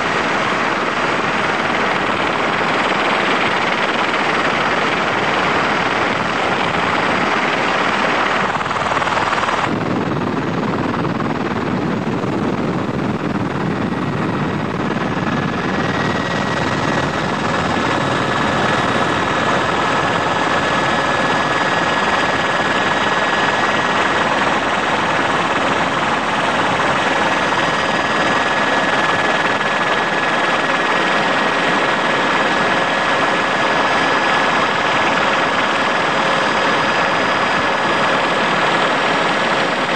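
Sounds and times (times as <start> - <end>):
helicopter engine and rotor noise: 0.0 - 39.9.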